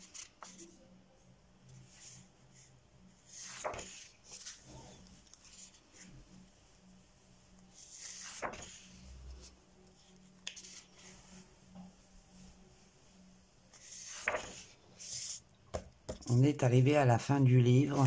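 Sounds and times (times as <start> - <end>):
book pages turning: 0.0 - 0.8, 3.2 - 6.2, 7.6 - 11.9, 13.7 - 15.4, 17.8 - 18.0.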